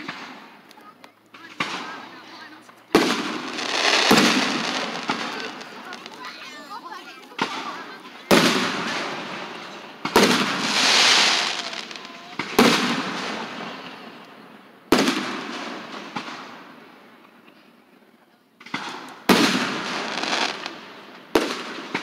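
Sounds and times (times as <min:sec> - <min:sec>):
small fireworks pops: 0:00.0 - 0:16.5, 0:18.6 - 0:22.0
fireworks booming: 0:01.3 - 0:06.8, 0:07.4 - 0:14.2, 0:14.9 - 0:17.2, 0:18.6 - 0:22.0
fireworks hiss: 0:01.3 - 0:14.1, 0:18.7 - 0:22.0.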